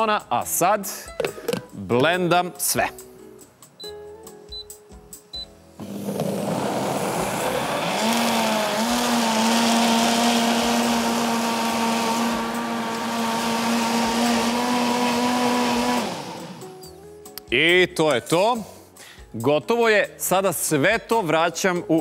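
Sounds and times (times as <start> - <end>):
blender motor whine: 5.8 - 16.8.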